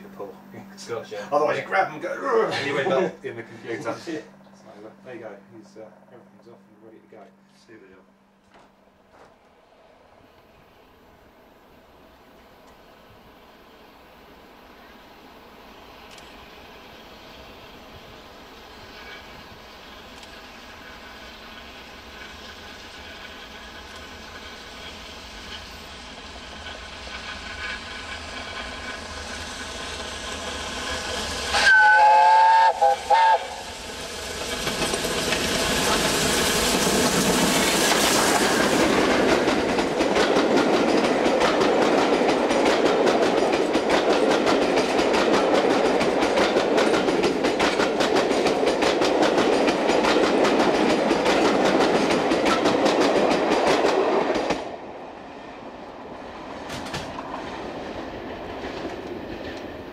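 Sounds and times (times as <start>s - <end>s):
steam locomotive approaching: 0.0s - 59.9s
train coaches rushing past: 10.5s - 59.9s
steam locomotive whistle: 30.7s - 34.1s
wheels clacking on track: 33.7s - 54.8s.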